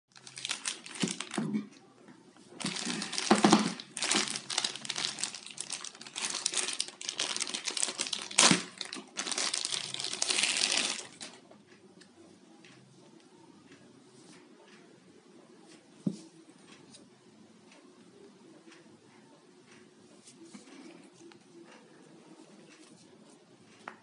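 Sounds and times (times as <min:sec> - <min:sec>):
plastic bag crinkling: 0:00.1 - 0:01.5, 0:02.6 - 0:11.4.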